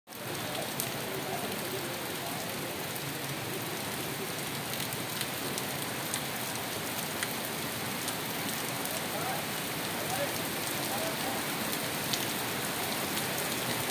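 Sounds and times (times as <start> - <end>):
steady rain on a street: 0.1 - 13.9.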